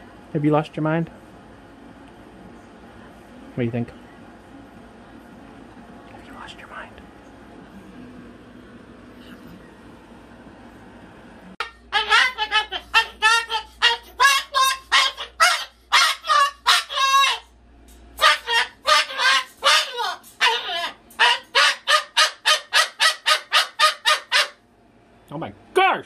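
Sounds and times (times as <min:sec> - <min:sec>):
cockatoo screaming: 0:11.6 - 0:17.5, 0:18.2 - 0:24.6.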